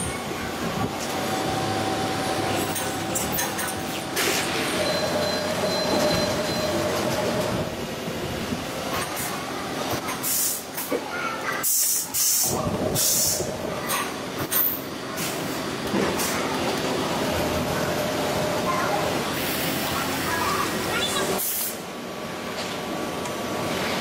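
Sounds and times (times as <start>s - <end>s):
brief tone: 4.7s - 7.0s.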